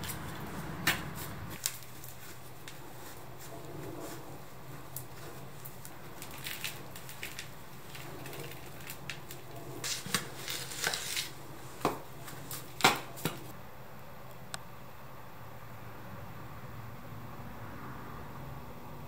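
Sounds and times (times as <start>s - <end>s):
soil rustling and scraping: 0.0s - 13.6s.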